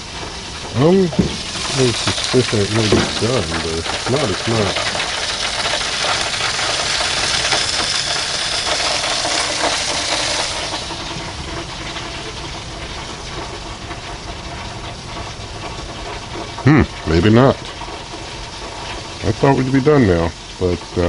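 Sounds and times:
gas grill hissing and sizzling: 0:00.0 - 0:21.0
grill lid closing: 0:01.1 - 0:11.1.

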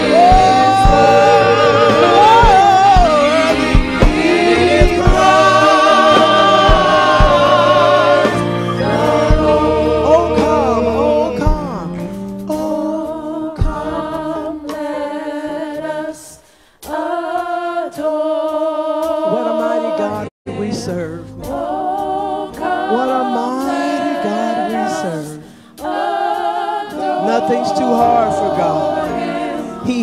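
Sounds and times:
woman singing gospel solo: 0:00.0 - 0:09.4.

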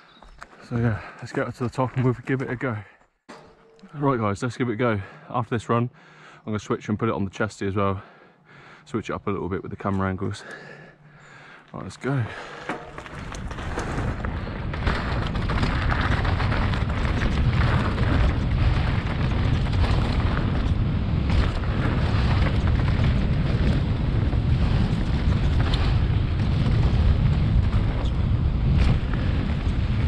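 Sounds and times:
tyres rumbling over dirt: 0:09.8 - 0:30.0
bike clacking: 0:09.9 - 0:30.0
wind buffeting microphone: 0:12.2 - 0:30.0.

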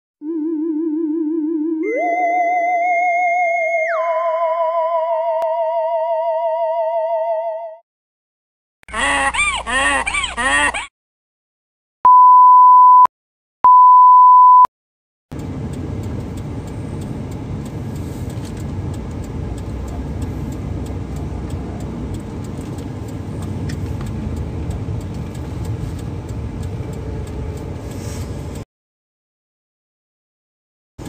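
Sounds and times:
car engine and tyres rumbling: 0:15.3 - 0:28.6.

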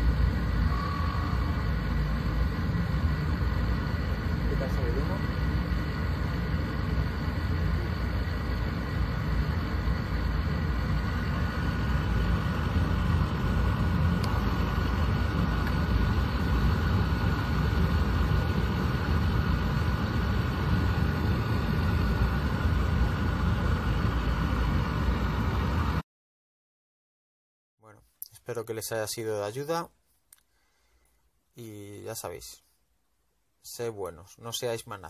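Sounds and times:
oil burner rumbling: 0:00.0 - 0:26.0
faint high tone: 0:00.6 - 0:02.2.

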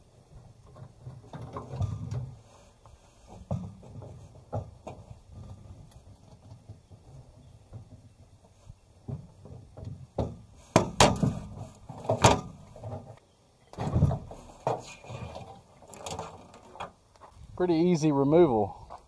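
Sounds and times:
dull thump: 0:09.0 - 0:13.1.

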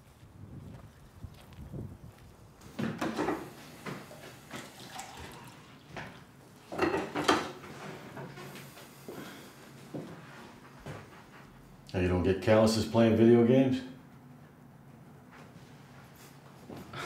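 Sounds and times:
dishes clinking and clattering: 0:04.6 - 0:07.8.

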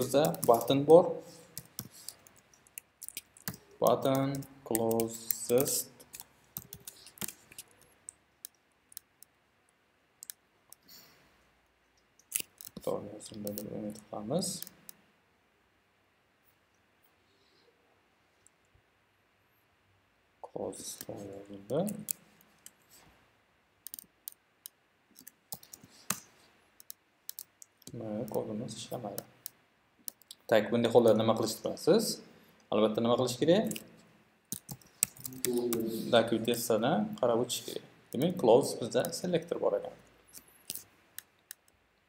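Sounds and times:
soft hiss: 0:00.0 - 0:42.0
keyboard keys clicking: 0:03.0 - 0:07.7.

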